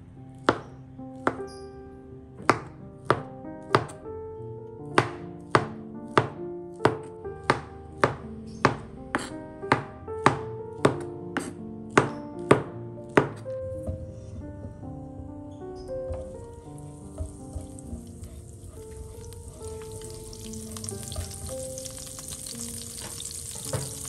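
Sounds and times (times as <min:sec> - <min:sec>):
soft background music: 0:00.0 - 0:24.0
knife slicing on cutting board: 0:11.4 - 0:11.6.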